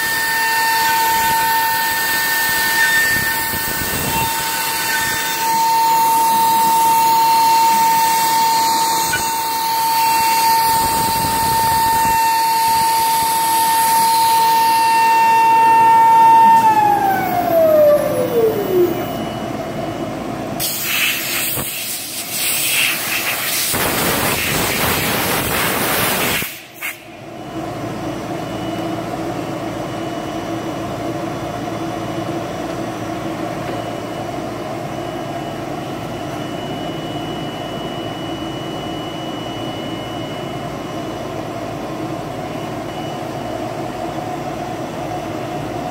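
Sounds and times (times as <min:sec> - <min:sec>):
router spindle whining: 0:00.0 - 0:19.3
steady hum: 0:00.0 - 0:45.9.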